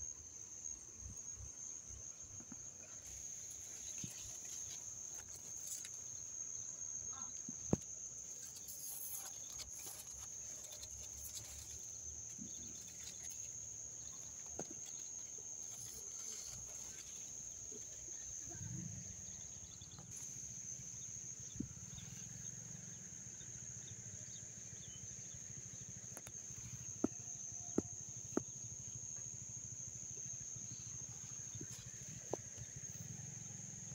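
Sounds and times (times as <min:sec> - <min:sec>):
crickets trilling: 0:00.0 - 0:33.9.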